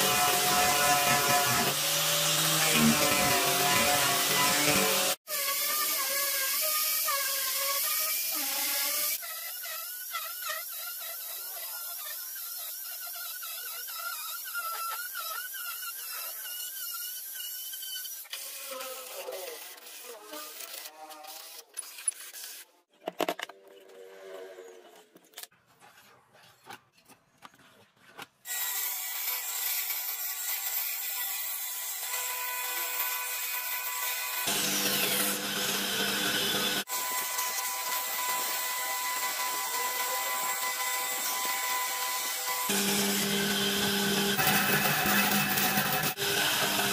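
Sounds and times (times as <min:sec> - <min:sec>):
angle grinder sanding wood: 0:00.0 - 0:22.7, 0:28.5 - 0:46.9.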